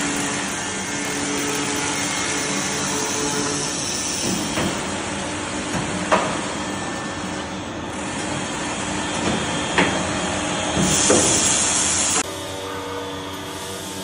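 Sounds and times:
cold saw running: 0:00.0 - 0:14.0
bright hiss: 0:10.8 - 0:12.2.

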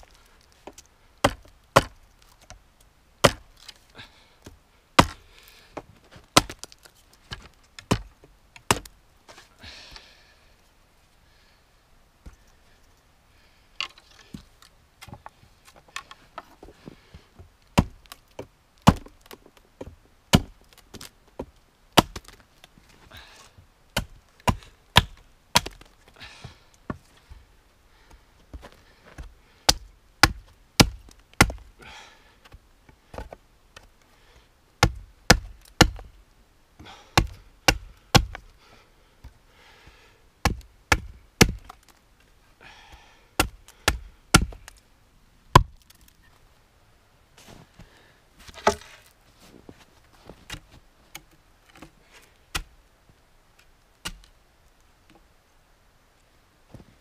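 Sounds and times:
hatchet chopping wood: 0:00.7 - 0:02.0, 0:03.2 - 0:03.5, 0:05.0 - 0:05.2, 0:06.4 - 0:09.0, 0:17.8 - 0:21.1, 0:22.0 - 0:22.4, 0:24.0 - 0:25.9, 0:29.2 - 0:31.7, 0:34.8 - 0:36.1, 0:37.2 - 0:38.4, 0:40.4 - 0:41.9, 0:43.4 - 0:44.8, 0:45.5 - 0:46.0, 0:54.0 - 0:54.3.

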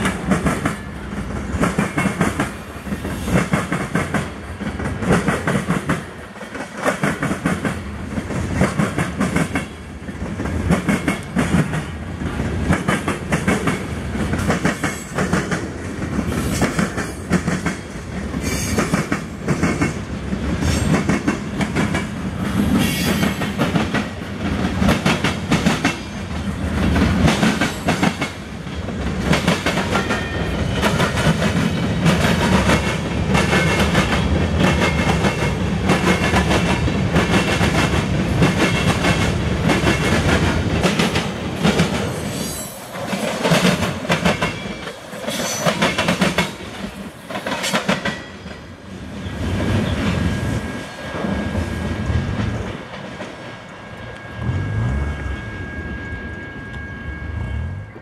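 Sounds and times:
wheels clacking on rail joints: 0:03.3 - 0:48.7.

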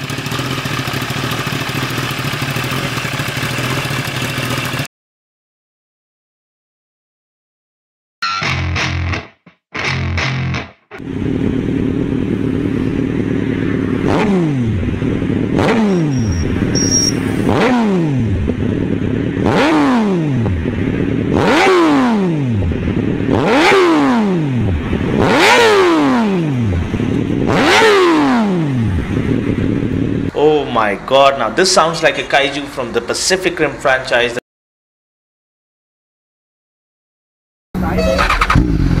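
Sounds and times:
motorcycle engine idling and revving: 0:00.0 - 0:04.9, 0:11.0 - 0:30.6, 0:37.8 - 0:39.0.

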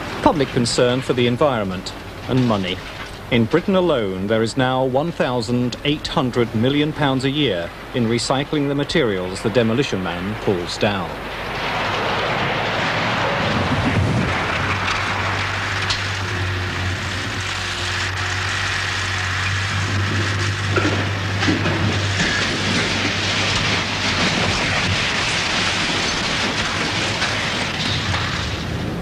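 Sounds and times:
building demolition rumbling: 0:00.0 - 0:29.0
debris tumbling: 0:00.0 - 0:29.0
sharp cracks: 0:10.9 - 0:29.0.

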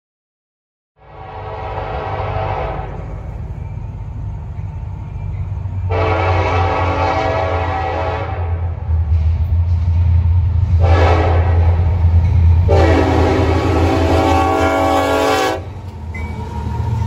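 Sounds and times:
locomotive air horn blasts: 0:01.0 - 0:03.0, 0:05.9 - 0:08.7, 0:10.8 - 0:11.8, 0:12.6 - 0:15.7
low rumble of locomotive: 0:01.0 - 0:17.0.

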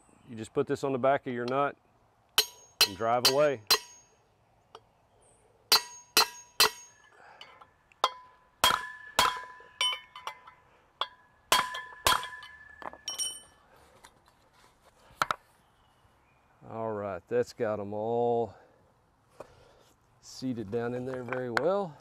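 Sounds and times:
hammer striking steel punch: 0:02.4 - 0:04.1, 0:05.7 - 0:07.1, 0:08.0 - 0:13.4.

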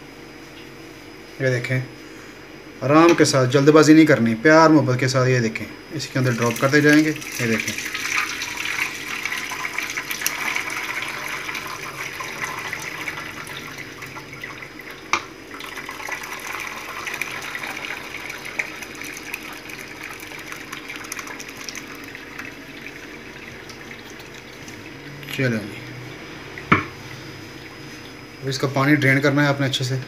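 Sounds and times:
liquid pouring into strainer: 0:06.0 - 0:28.0.

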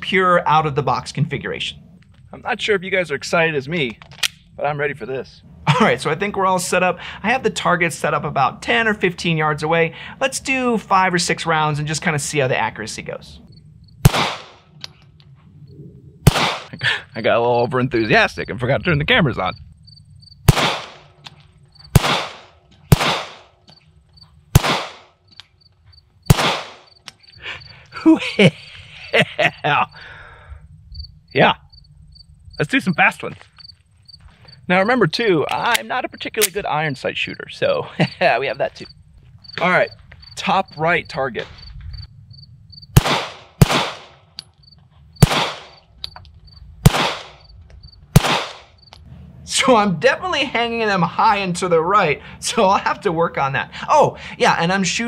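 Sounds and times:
pistol shots with echo: 0:14.0 - 0:14.6, 0:16.2 - 0:16.7, 0:20.4 - 0:21.1, 0:21.9 - 0:23.5, 0:24.5 - 0:25.1, 0:26.3 - 0:26.9, 0:43.0 - 0:44.2, 0:45.2 - 0:45.8, 0:46.8 - 0:47.4, 0:48.2 - 0:48.7.

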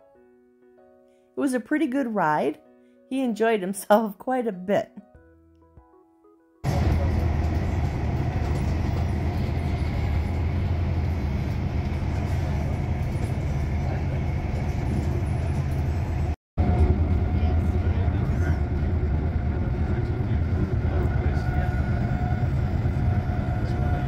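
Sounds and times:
train rumbling on tracks: 0:06.6 - 0:24.0.

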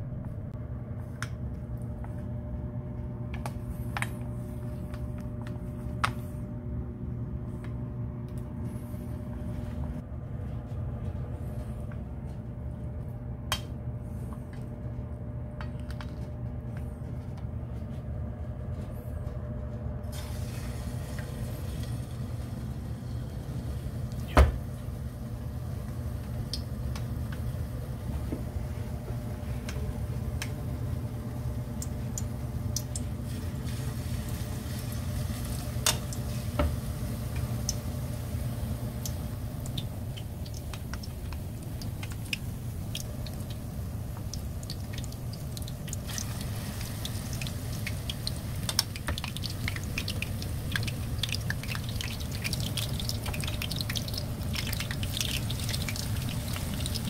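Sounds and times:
steady low hum: 0:00.0 - 0:57.0
frying sizzle in hot oil: 0:20.1 - 0:24.2, 0:31.0 - 0:57.0.

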